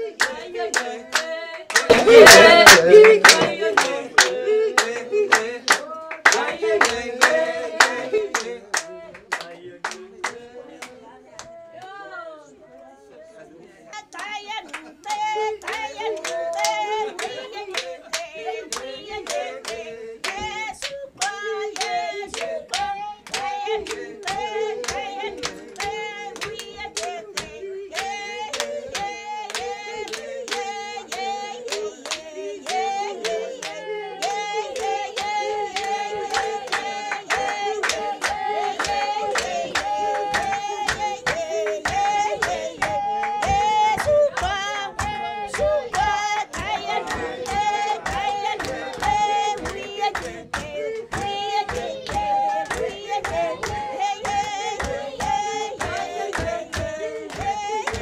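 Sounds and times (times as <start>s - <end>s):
rhythmic hand-clapping: 0.0s - 12.0s, 14.0s - 58.0s
woman singing into microphone: 14.0s - 33.4s, 34.2s - 58.0s.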